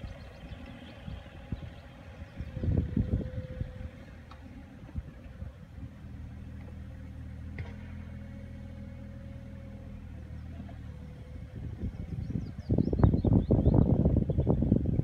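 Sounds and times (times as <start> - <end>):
excavator diesel engine running: 0.0 - 13.2.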